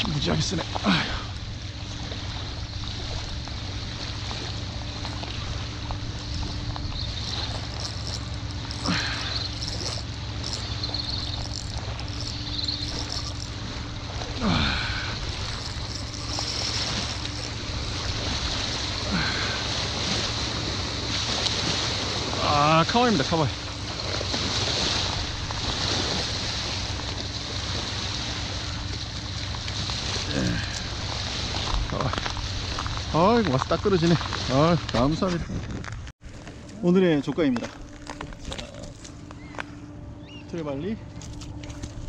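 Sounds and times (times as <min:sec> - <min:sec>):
small waves lapping on shells: 0:00.0 - 0:35.0
wind buffeting microphone: 0:23.8 - 0:36.1.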